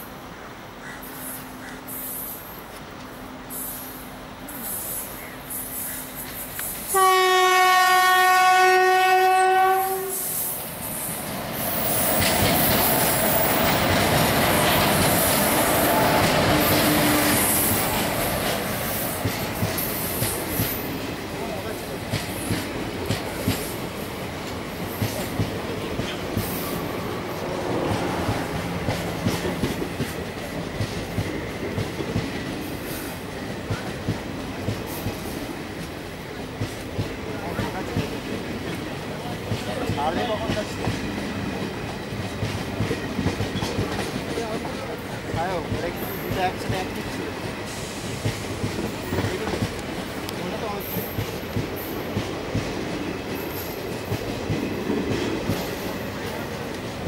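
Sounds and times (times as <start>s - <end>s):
train wheels on track: 0.0s - 57.0s
locomotive horn blast: 6.9s - 10.3s.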